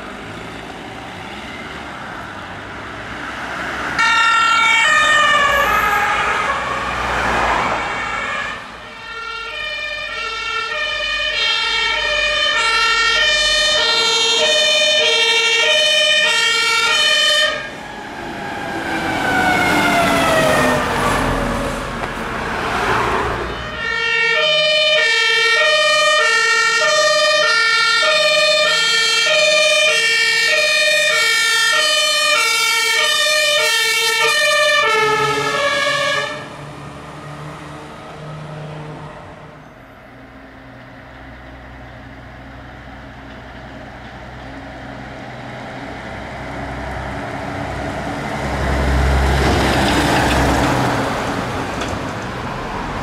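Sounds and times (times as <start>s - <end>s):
two-tone sirens: 0.0s - 53.0s
vehicle engine: 0.0s - 53.0s.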